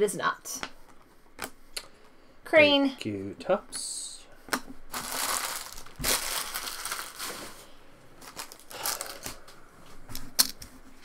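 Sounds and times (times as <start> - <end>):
foil wrappers crumpling: 4.9 - 9.5.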